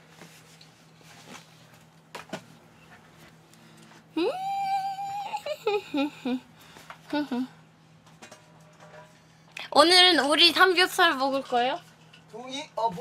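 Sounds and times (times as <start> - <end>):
faint steady hum: 0.0 - 13.0
high-pitched voiced cry: 4.2 - 6.4.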